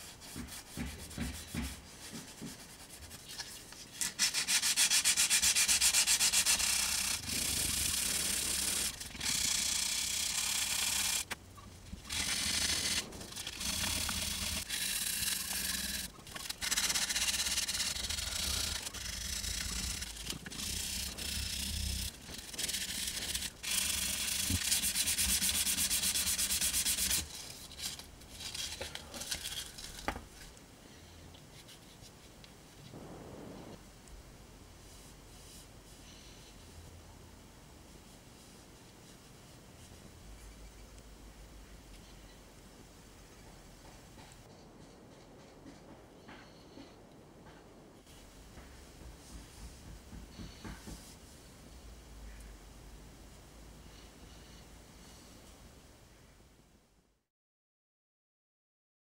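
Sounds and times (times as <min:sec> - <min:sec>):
sandpaper rubbing on steel blade: 0:04.0 - 0:11.4, 0:12.1 - 0:29.8.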